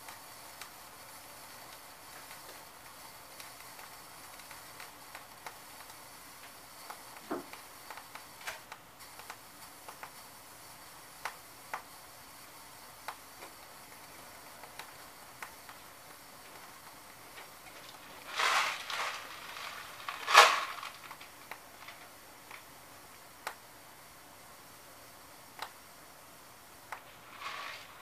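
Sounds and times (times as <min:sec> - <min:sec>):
short hissing rushes: 0:27.1 - 0:28.0.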